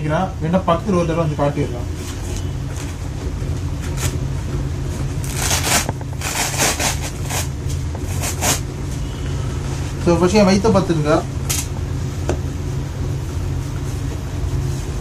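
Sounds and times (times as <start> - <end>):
steady low hum: 0.0 - 15.0
velcro ripping open: 5.2 - 7.5, 8.1 - 8.6.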